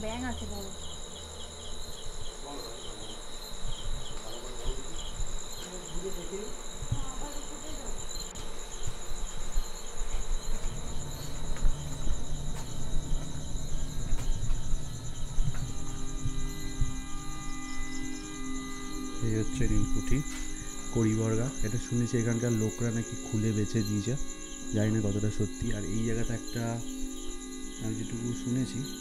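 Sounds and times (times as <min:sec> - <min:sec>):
crickets and insects trilling: 0:00.0 - 0:29.0
low rumbling and knocks: 0:10.4 - 0:17.1.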